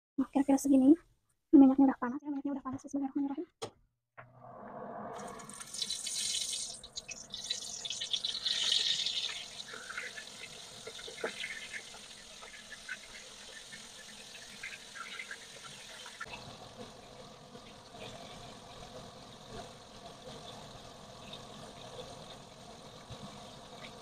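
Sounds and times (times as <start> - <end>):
oysters sizzling in hot oil: 5.4 - 24.0.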